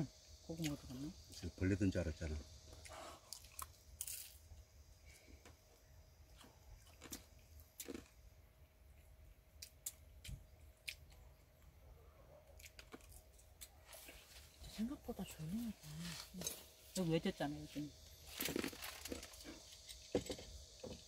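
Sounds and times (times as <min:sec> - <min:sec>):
faint chewing: 0:02.7 - 0:04.3, 0:06.3 - 0:08.2, 0:08.9 - 0:11.8, 0:12.4 - 0:14.6.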